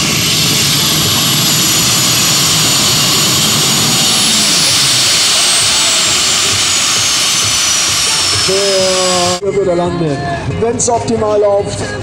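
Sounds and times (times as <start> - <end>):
tractor engine roaring: 0.0 - 9.4.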